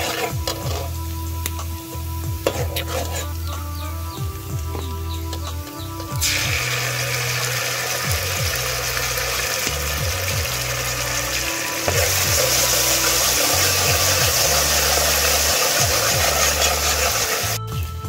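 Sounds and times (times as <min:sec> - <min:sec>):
ladle stirring in pan: 0:00.0 - 0:09.9, 0:10.8 - 0:17.4
sauce sizzling in hot oil: 0:00.0 - 0:17.6.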